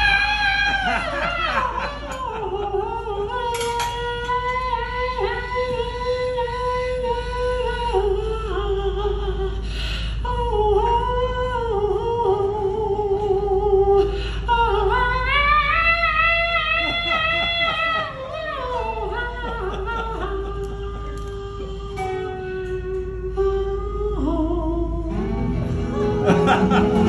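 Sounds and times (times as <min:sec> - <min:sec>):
sliding blues melody: 0:18.0 - 0:27.0
acoustic accompaniment: 0:19.7 - 0:27.0.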